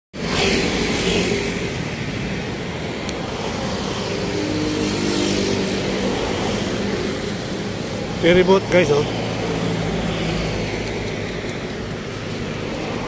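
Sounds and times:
road traffic passing: 0:00.2 - 0:13.0.

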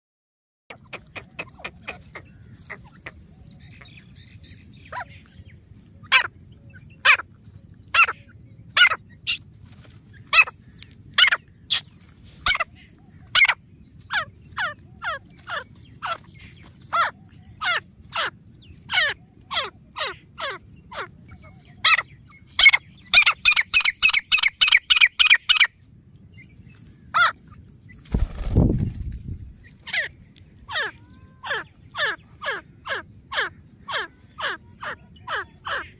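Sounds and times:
francolins calling: 0:00.7 - 0:25.7, 0:29.6 - 0:35.9.

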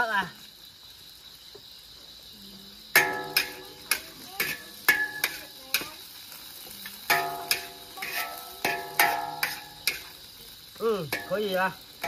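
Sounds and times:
faint sizzling: 0:00.0 - 0:12.0
metal spatula clanging on wok: 0:03.0 - 0:05.6, 0:07.0 - 0:10.2, 0:11.1 - 0:12.0.

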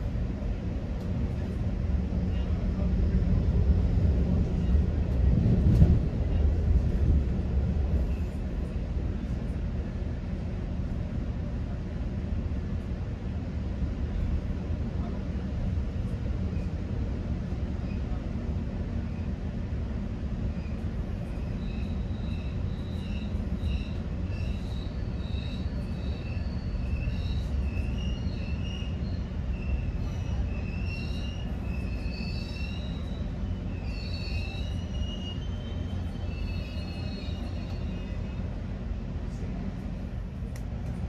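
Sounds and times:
train wheels rumbling on rails: 0:00.0 - 0:41.0
high-pitched wheel squeals: 0:30.7 - 0:37.8.

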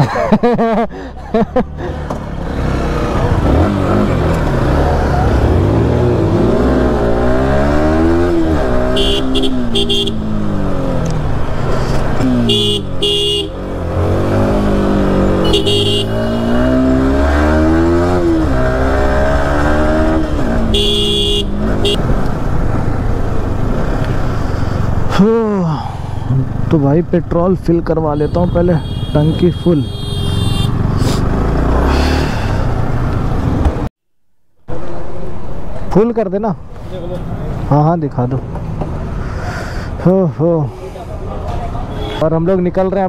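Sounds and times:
motorcycle engine accelerating: 0:02.0 - 0:12.5, 0:13.5 - 0:22.8, 0:30.3 - 0:33.9
vehicle horns honking: 0:08.8 - 0:10.3, 0:12.3 - 0:13.7, 0:15.4 - 0:16.9, 0:20.7 - 0:22.0, 0:28.1 - 0:30.8, 0:41.9 - 0:42.3.

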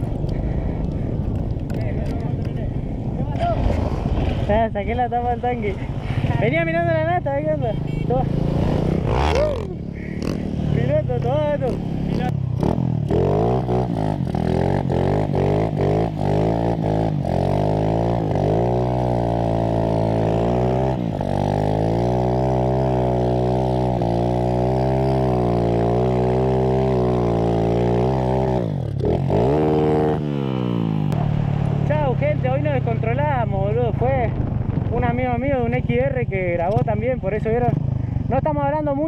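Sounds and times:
small motorcycle engine revving: 0:08.1 - 0:10.9, 0:11.5 - 0:31.2.

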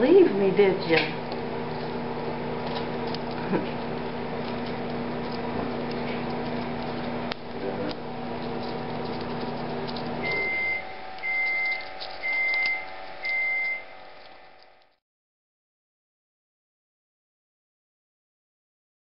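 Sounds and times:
appliance humming: 0:00.0 - 0:15.0
high electronic beeps: 0:10.2 - 0:13.8.

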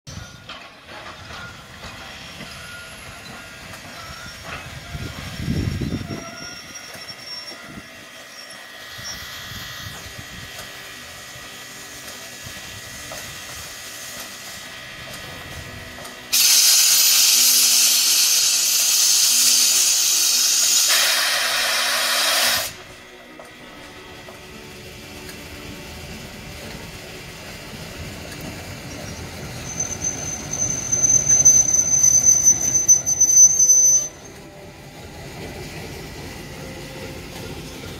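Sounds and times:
loud hiss of steam: 0:01.4 - 0:23.0.

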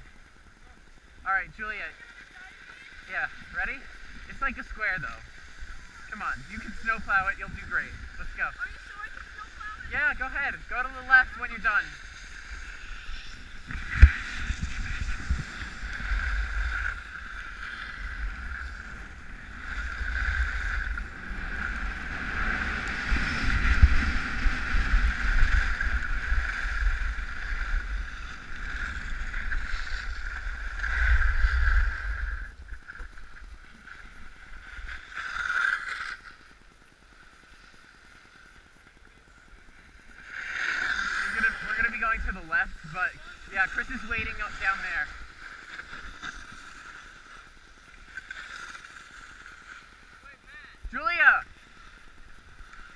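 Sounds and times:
skis sliding over snow: 0:00.0 - 0:52.9
wind buffeting microphone: 0:03.4 - 0:32.8.

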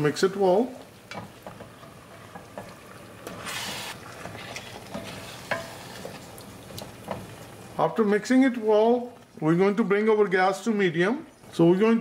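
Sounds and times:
light sizzle: 0:00.0 - 0:12.0
spatula scraping pot: 0:01.1 - 0:07.4
loud hiss: 0:03.4 - 0:04.0.

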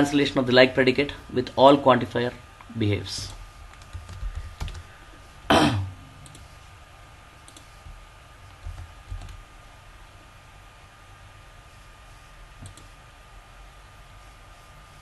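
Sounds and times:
cough-like throat noise: 0:05.5 - 0:06.0.

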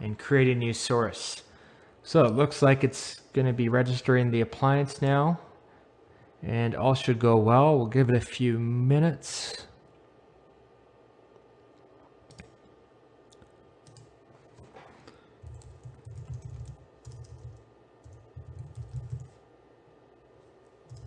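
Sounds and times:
keyboard typing clicks: 0:12.3 - 0:12.6, 0:13.3 - 0:14.1, 0:15.4 - 0:19.3.

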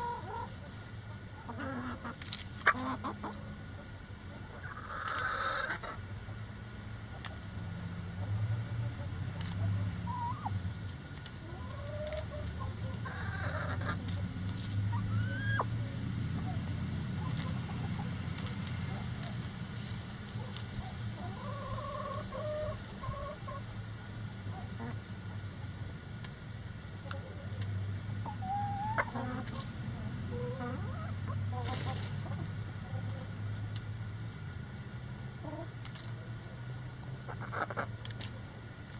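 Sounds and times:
hens clucking and calling: 0:00.0 - 0:06.5, 0:08.2 - 0:25.4, 0:27.0 - 0:33.8, 0:35.3 - 0:38.9
low steady hum: 0:00.0 - 0:38.9
harsh scratchy hen call: 0:04.6 - 0:06.0.

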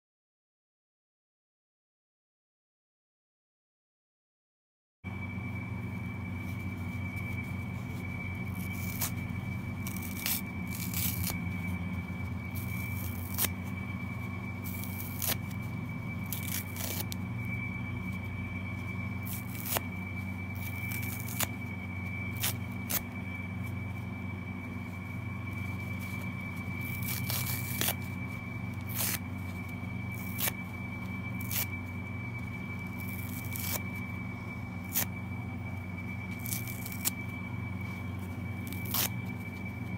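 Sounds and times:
steady low hum: 0:05.1 - 0:39.9
thin high whine: 0:05.1 - 0:39.9
foam sponges tearing: 0:07.9 - 0:11.9, 0:12.5 - 0:17.2, 0:19.2 - 0:23.1, 0:25.5 - 0:31.8, 0:32.8 - 0:34.0, 0:34.7 - 0:35.2, 0:36.3 - 0:37.2, 0:38.6 - 0:39.3.

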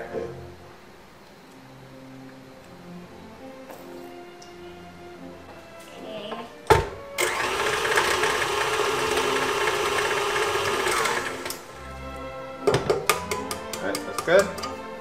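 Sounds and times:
stand mixer motor running: 0:07.2 - 0:11.6.

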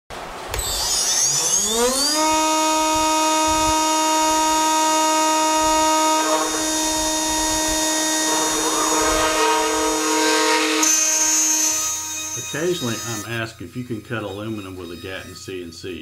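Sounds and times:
router spindle whine: 0:00.4 - 0:15.6
bit grinding into metal: 0:00.6 - 0:13.3.

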